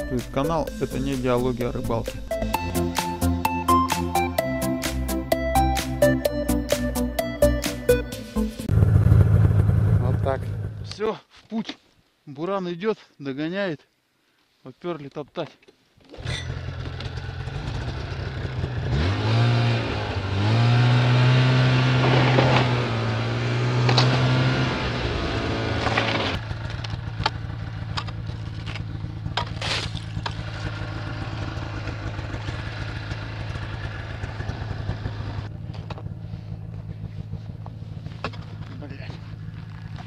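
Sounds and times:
snowmobile engine revving: 16.5s - 26.6s
knocks and crunches: 28.0s - 30.6s.

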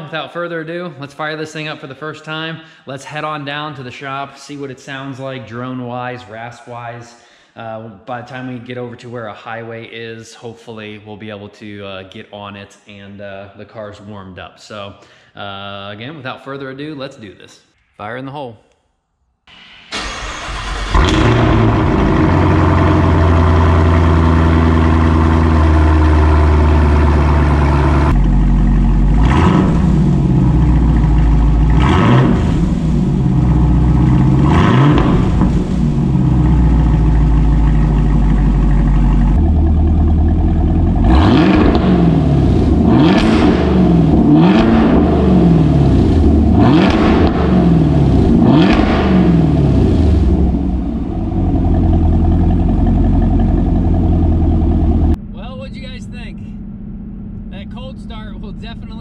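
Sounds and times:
car engine idling: 19.5s - 59.0s
car engine starting: 19.5s - 59.0s
car engine revving: 19.6s - 59.0s.

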